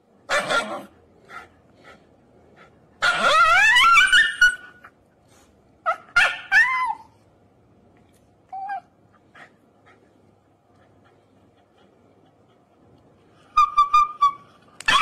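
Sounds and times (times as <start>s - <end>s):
dog screaming: 0.3s - 0.9s, 3.0s - 4.9s, 5.8s - 7.1s, 13.6s - 15.0s.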